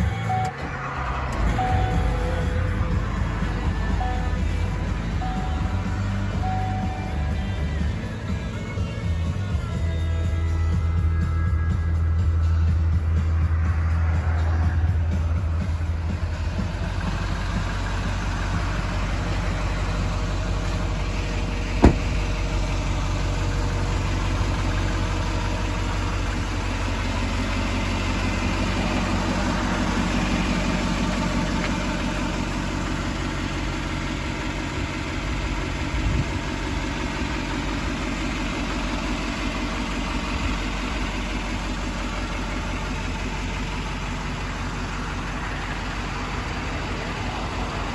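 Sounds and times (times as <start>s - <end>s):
diesel engine idling: 0.0s - 47.9s
sharp knock: 21.8s - 22.2s.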